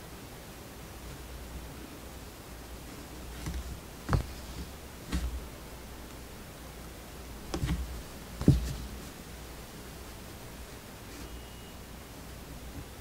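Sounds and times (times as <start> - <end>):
background hiss: 0.0 - 13.0
fabric rustling: 2.8 - 5.9, 7.4 - 9.4
embroidery hoop knocks: 3.4 - 5.5, 7.5 - 9.0.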